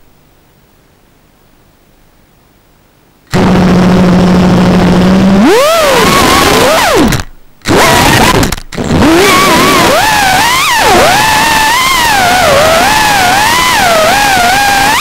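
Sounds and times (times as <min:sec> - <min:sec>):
drone motors whining: 0:03.3 - 0:15.0.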